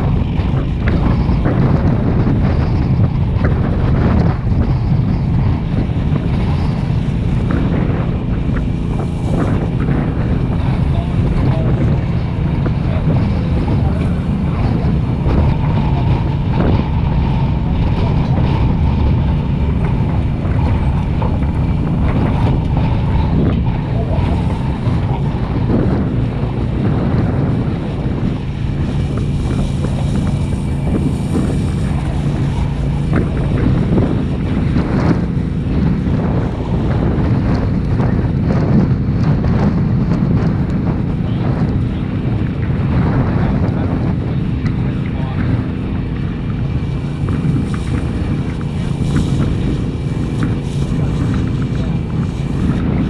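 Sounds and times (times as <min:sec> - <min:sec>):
truck engine running: 0:00.0 - 0:53.0
wind buffeting microphone: 0:00.0 - 0:53.0.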